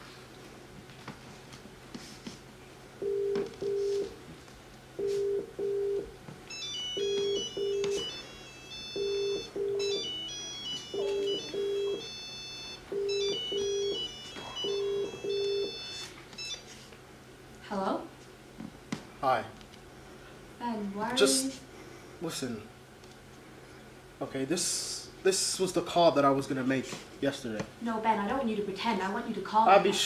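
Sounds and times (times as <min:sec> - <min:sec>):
mobile phone ringtone melody: 0:03.0 - 0:04.1, 0:05.0 - 0:16.7
telephone ringback beeps: 0:03.0 - 0:04.1, 0:05.0 - 0:16.7.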